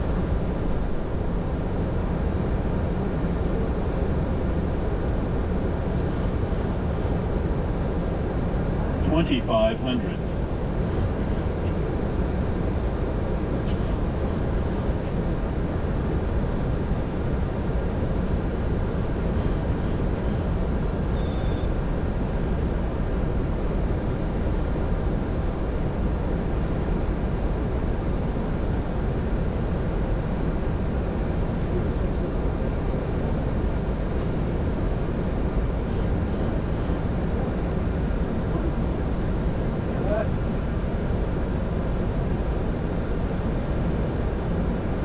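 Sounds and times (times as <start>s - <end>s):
aircraft cockpit engine and air noise: 0.0s - 45.0s
high-pitched electronic beep: 21.2s - 21.7s.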